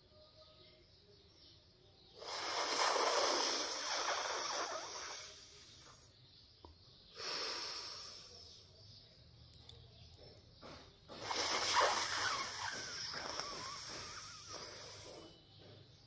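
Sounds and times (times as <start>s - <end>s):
breath out through nose: 2.2s - 6.0s, 7.2s - 8.4s, 11.2s - 15.4s
airy breath drawn in: 7.2s - 8.4s.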